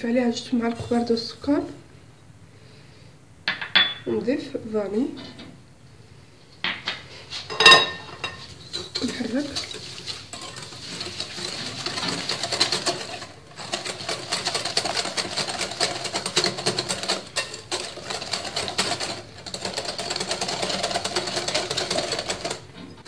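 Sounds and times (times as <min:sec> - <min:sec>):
hand whisk scraping glass bowl: 0:00.6 - 0:01.3, 0:08.2 - 0:22.7.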